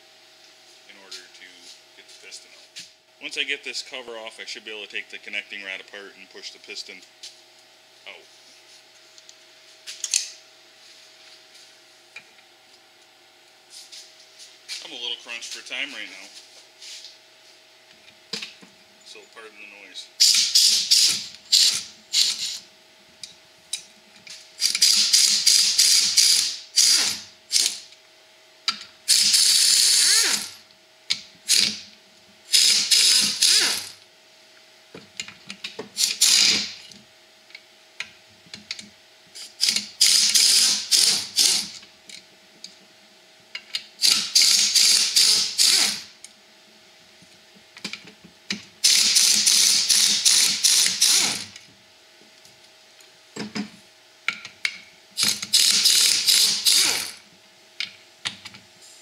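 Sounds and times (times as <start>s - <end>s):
impact wrench rattling: 48.8s - 51.6s, 55.2s - 57.2s.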